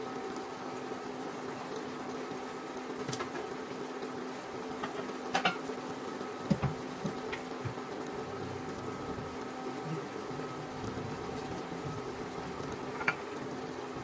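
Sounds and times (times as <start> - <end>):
induction cooktop humming: 0.0 - 14.0.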